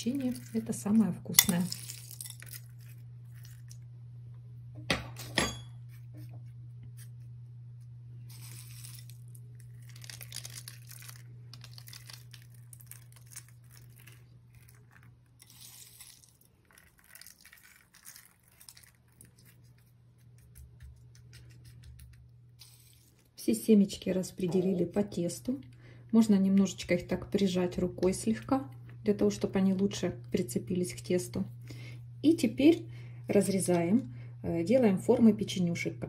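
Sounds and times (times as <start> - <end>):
steady low hum: 0.0 - 15.4, 19.1 - 36.0
seeds rustling and pattering: 8.3 - 19.9.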